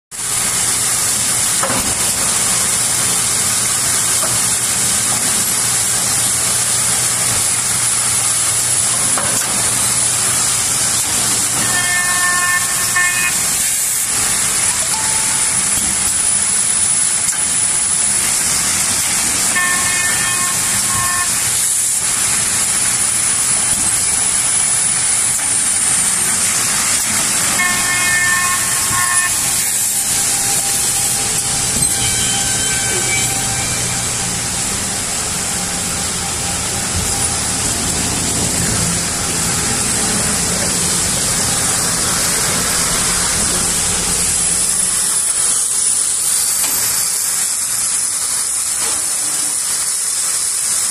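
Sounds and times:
machinery hiss with high whine: 0.2s - 50.9s
brief tonal sound: 11.0s - 22.1s, 25.3s - 41.0s.

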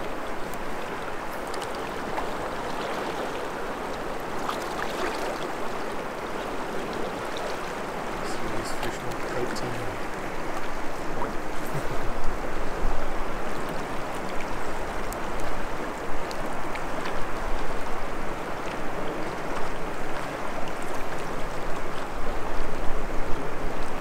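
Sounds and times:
river water rushing: 0.0s - 24.0s.

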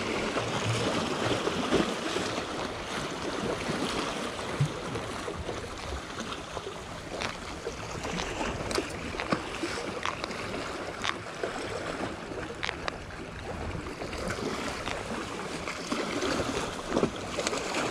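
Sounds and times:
water lapping against a wall: 0.0s - 17.9s
fishing tackle clicks: 10.0s - 10.4s, 12.6s - 13.0s.

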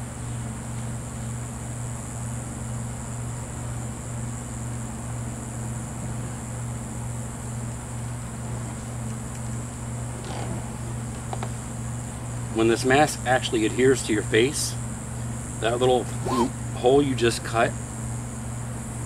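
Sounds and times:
machine humming: 1.3s - 19.0s
high hiss: 16.0s - 16.9s.

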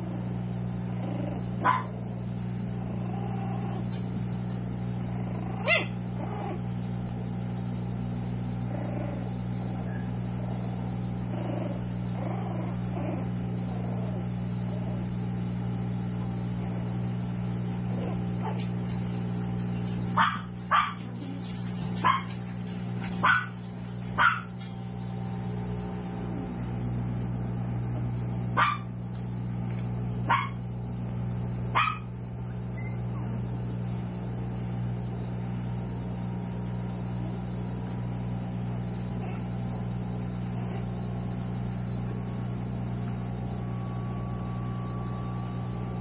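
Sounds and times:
steady low hum: 0.0s - 46.0s
puppies yipping: 1.6s - 1.9s, 5.3s - 6.5s, 18.0s - 24.8s, 30.3s - 30.6s, 31.8s - 32.1s, 32.7s - 33.4s.

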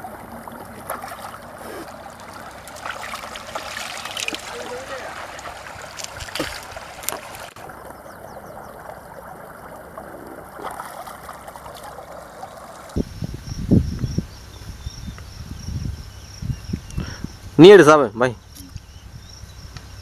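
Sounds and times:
stream water trickling and splashing: 0.0s - 13.1s
wind on microphone rumbling: 12.9s - 17.6s.

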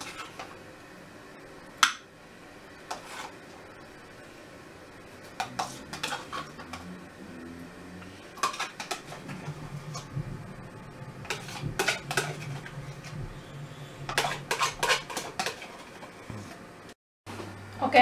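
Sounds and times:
metal spoon scraping plastic tub: 11.2s - 13.4s, 14.0s - 15.9s.

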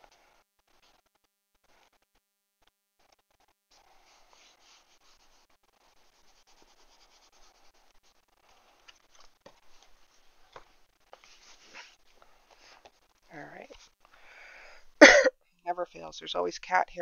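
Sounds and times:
palms rubbing paper: 0.0s - 2.2s, 3.0s - 14.0s.

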